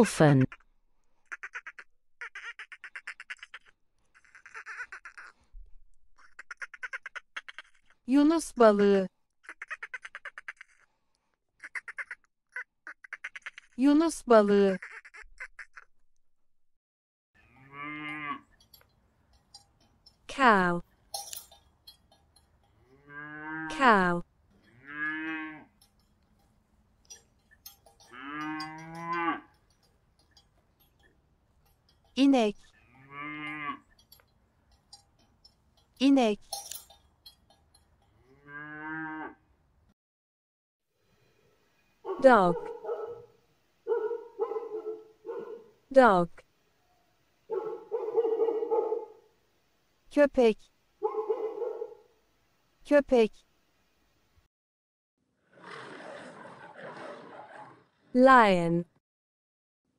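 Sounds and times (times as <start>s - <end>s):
cattle mooing: 17.4s - 18.8s, 22.3s - 23.8s, 24.5s - 32.0s, 32.6s - 35.6s, 38.1s - 39.4s
dolphin clicking: 18.5s - 20.3s, 20.9s - 22.9s, 24.5s - 32.8s.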